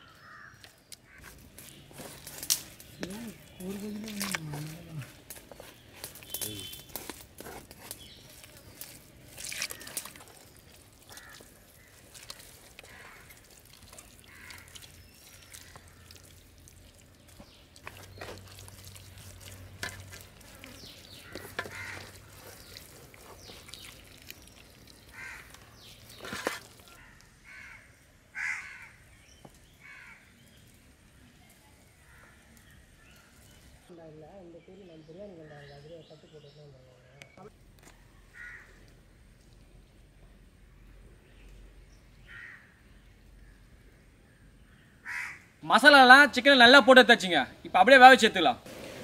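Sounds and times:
crows cawing: 0.0 - 1.3, 11.0 - 16.3, 21.2 - 22.8, 25.1 - 25.6, 26.9 - 29.1, 29.8 - 30.3, 38.3 - 38.9, 42.2 - 42.8, 45.0 - 45.6.

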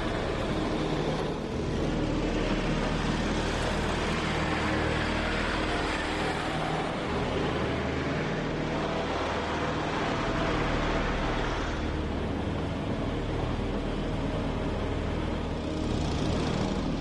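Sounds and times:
road noise: 0.0 - 17.0
vehicle engines humming: 0.0 - 17.0.

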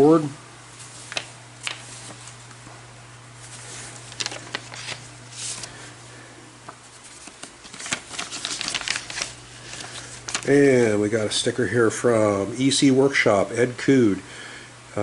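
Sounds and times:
steady low hum: 0.0 - 15.0
paper stickers rustling: 0.8 - 2.4, 3.4 - 5.9, 6.7 - 10.9.

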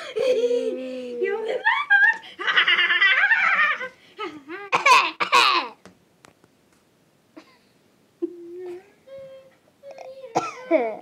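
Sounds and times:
people laughing hard: 1.6 - 4.0.

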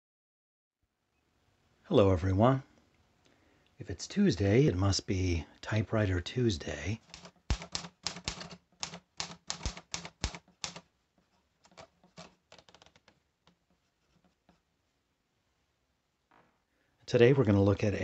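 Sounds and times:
typewriter key strikes: 7.0 - 10.9.

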